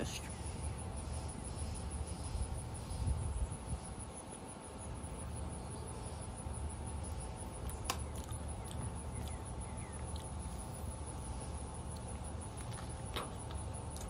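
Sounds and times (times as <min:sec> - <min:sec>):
wind on microphone: 0:02.8 - 0:04.0
person eating soft fruit: 0:06.8 - 0:14.0.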